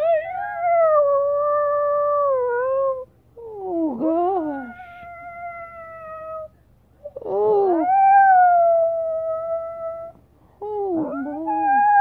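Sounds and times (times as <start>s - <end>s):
dog howling: 7.6s - 10.2s, 10.9s - 12.0s.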